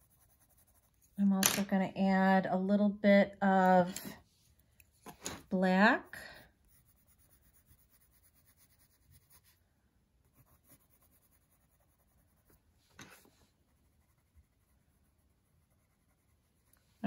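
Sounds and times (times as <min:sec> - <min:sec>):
pencil scratching on paper: 0:00.0 - 0:01.2, 0:06.3 - 0:09.6, 0:10.2 - 0:16.8.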